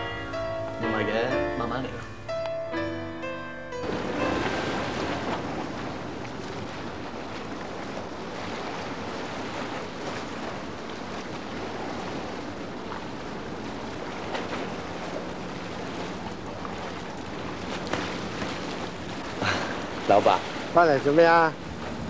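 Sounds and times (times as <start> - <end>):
water noise: 0.0 - 22.0
wind: 0.0 - 22.0.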